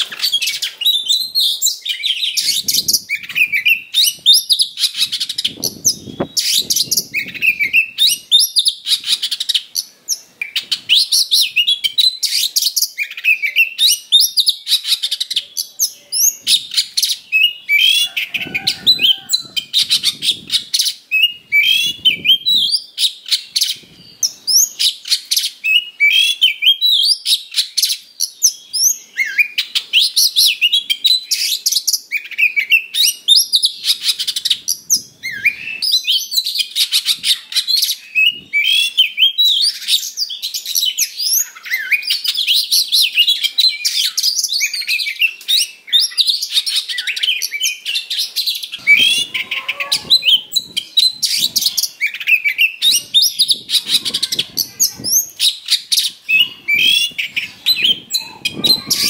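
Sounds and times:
bird singing varied whistles: 0:00.0 - 0:09.2, 0:18.8 - 0:34.0
harsh rasping bird notes: 0:48.8 - 0:51.9.

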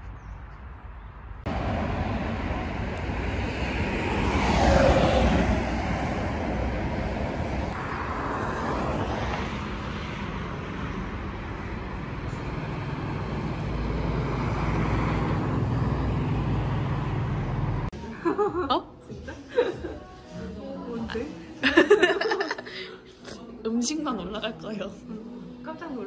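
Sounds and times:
passing cars: 0:00.0 - 0:18.0.

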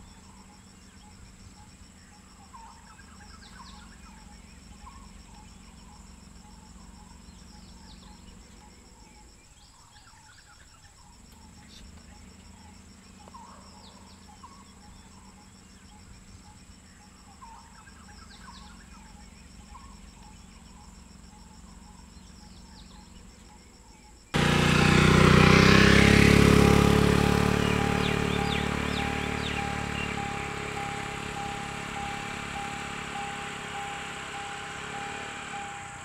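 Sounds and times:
insects trilling: 0:00.0 - 0:36.0
loud steady tone: 0:26.5 - 0:36.0.

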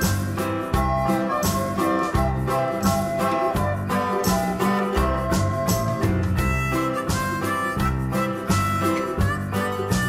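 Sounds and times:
upbeat background music: 0:00.0 - 0:10.0.

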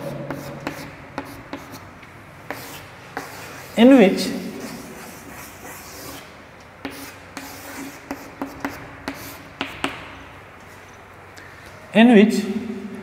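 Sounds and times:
chalk scraping on chalkboard: 0:00.0 - 0:01.9, 0:02.5 - 0:09.9
chalk tapping on board: 0:00.2 - 0:01.8, 0:02.5 - 0:03.7, 0:06.8 - 0:10.1.

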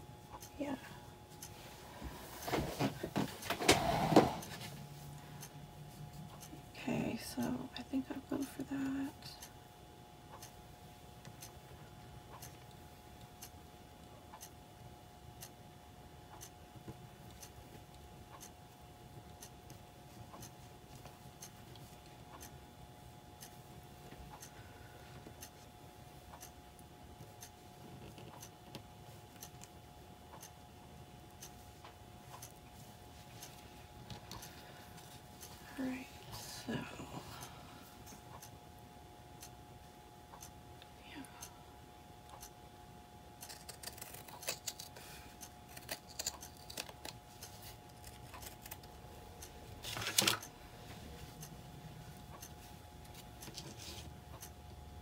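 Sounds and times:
steady hum: 0:00.0 - 0:55.0
faint regular ticking: 0:10.2 - 0:10.6, 0:11.2 - 0:11.6, 0:12.3 - 0:15.6, 0:16.2 - 0:16.6, 0:17.2 - 0:18.6, 0:19.2 - 0:22.8, 0:23.4 - 0:35.6, 0:37.4 - 0:38.8, 0:39.4 - 0:41.6, 0:42.2 - 0:42.7, 0:43.3 - 0:50.7, 0:51.3 - 0:53.5, 0:54.3 - 0:54.8
scissors cutting fabric: 0:43.4 - 0:48.9.

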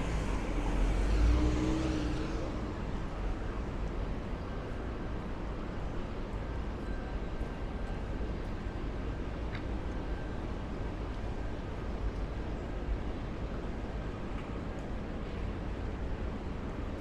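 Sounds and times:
steady traffic hum: 0:00.0 - 0:17.0.

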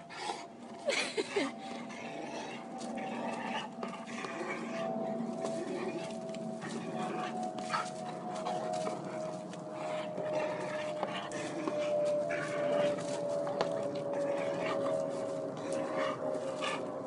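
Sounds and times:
dog panting: 0:00.0 - 0:17.0.

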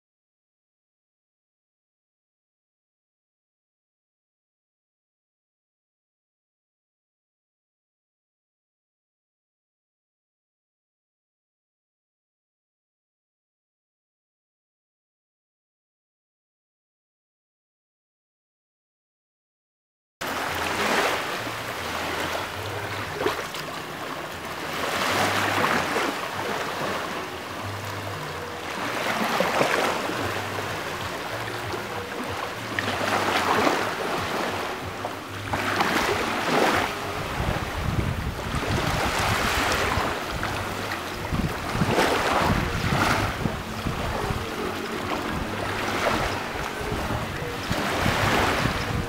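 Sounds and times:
small waves washing onto beach: 0:20.2 - 0:49.0
wind rumbling on microphone: 0:20.3 - 0:49.0.

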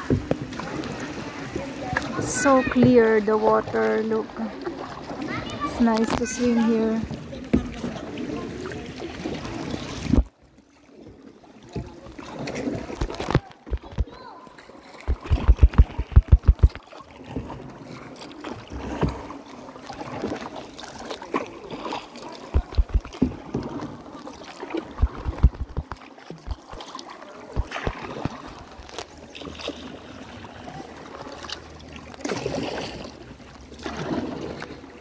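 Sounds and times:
paddle splashing in water: 0:00.0 - 0:35.0
rapid low thumping: 0:15.0 - 0:16.8, 0:22.6 - 0:23.3, 0:24.9 - 0:26.7, 0:27.6 - 0:28.0.

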